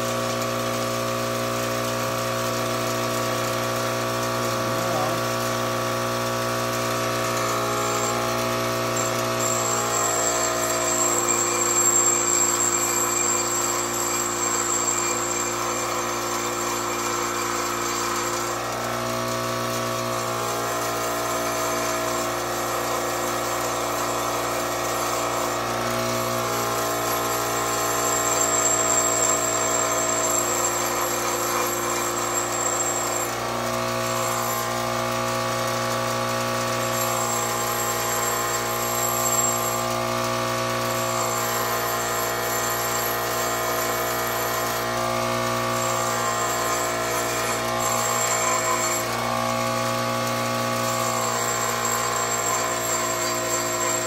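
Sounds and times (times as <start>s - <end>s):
bench grinder running: 0.0s - 54.0s
metal grinding on wheel: 7.2s - 34.9s, 40.8s - 54.0s.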